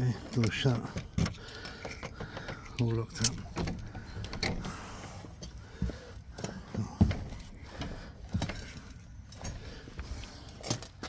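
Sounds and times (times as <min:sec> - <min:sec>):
small clicks and knocks: 0:00.3 - 0:04.8
keys jangling: 0:00.4 - 0:03.5, 0:10.3 - 0:11.0.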